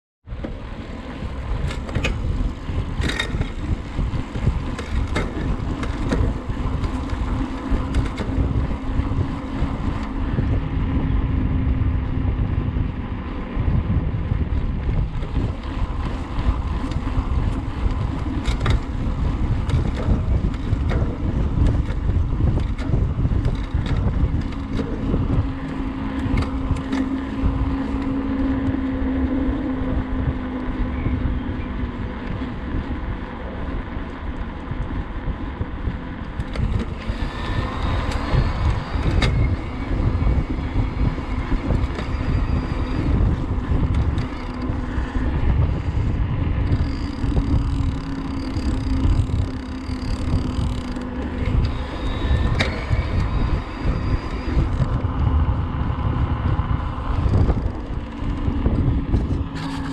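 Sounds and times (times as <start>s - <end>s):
wind on microphone: 0.2s - 59.9s
bike freehub buzzing: 0.3s - 59.9s
electric motor hum: 35.8s - 59.9s.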